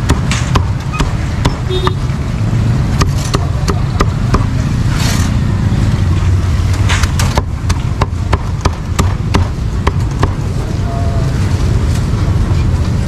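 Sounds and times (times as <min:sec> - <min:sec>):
cleaver chopping meat: 0:00.0 - 0:01.6, 0:03.0 - 0:04.5, 0:07.0 - 0:10.4
street traffic rumble: 0:00.0 - 0:13.0.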